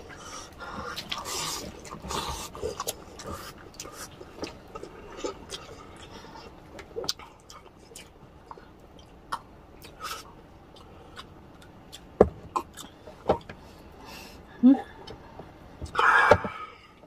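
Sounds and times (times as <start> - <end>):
gulping water: 0.0 - 13.1
chewing and lip smacks: 0.0 - 13.5.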